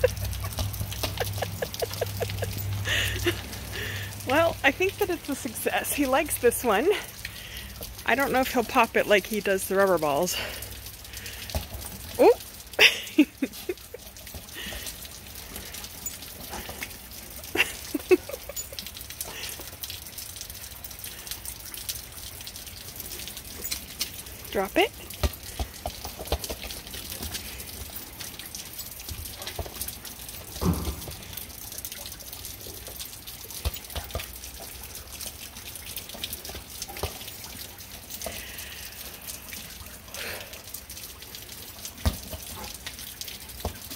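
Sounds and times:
rain pattering on driveway: 0.0s - 43.9s
ball thumps and splashes: 25.2s - 26.9s, 30.6s - 31.4s, 42.0s - 42.6s.

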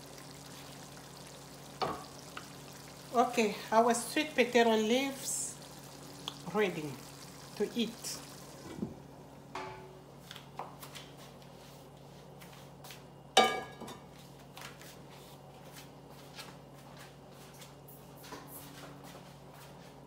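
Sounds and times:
pot simmering with pops: 0.0s - 9.7s
steady low hum: 0.0s - 10.2s.

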